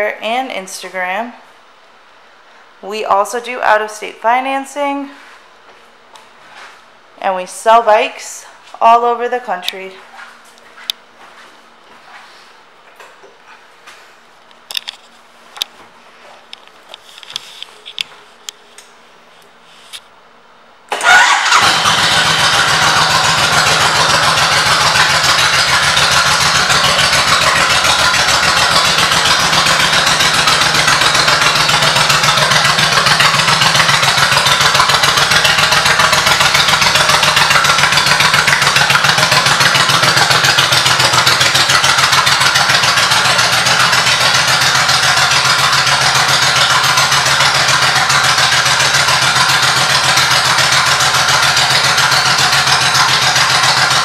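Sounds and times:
motorcycle engine idling: 0:21.0 - 0:54.0.

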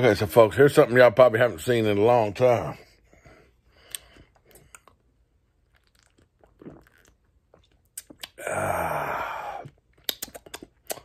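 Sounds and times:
mouth and bottle clicks: 0:10.0 - 0:11.0.

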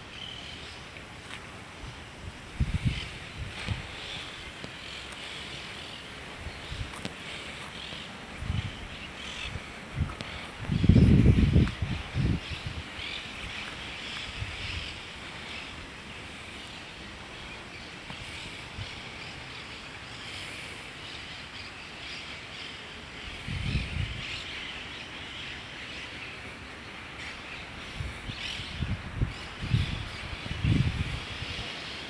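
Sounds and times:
high-pitched wildlife chorus: 0:00.0 - 0:32.0.

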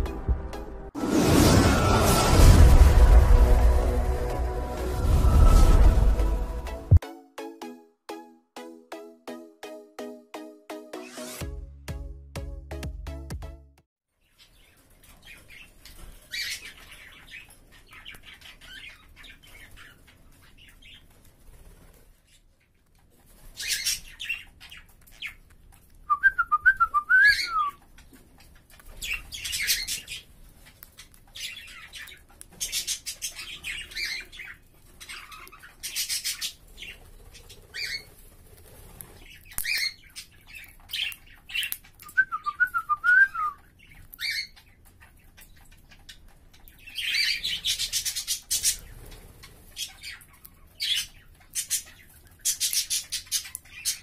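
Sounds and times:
caged birds calling: 0:14.2 - 0:54.0.

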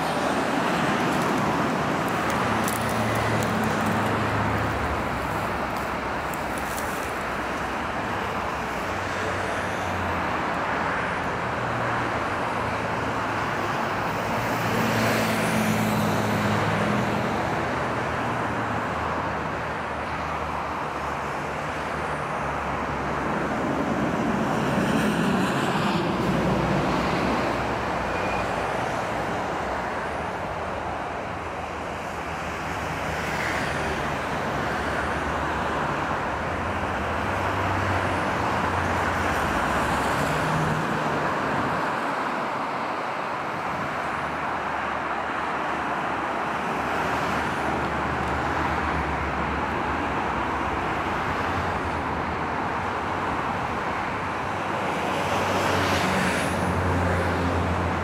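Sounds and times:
passing road traffic: 0:00.0 - 0:58.0.

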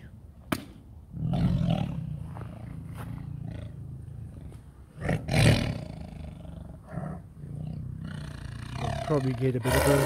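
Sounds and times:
tiger growling: 0:01.1 - 0:10.0.

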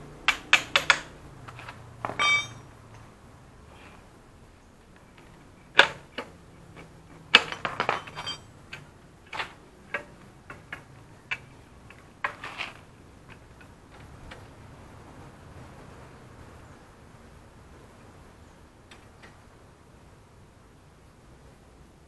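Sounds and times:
metal clinks of hand tools: 0:02.1 - 0:02.7, 0:07.7 - 0:08.5.

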